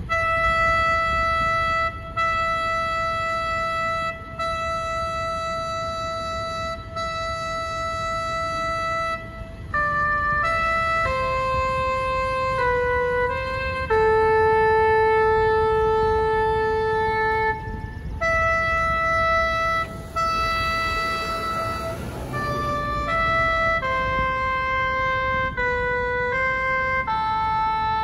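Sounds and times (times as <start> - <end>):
slow solo brass melody: 10.1 - 26.4.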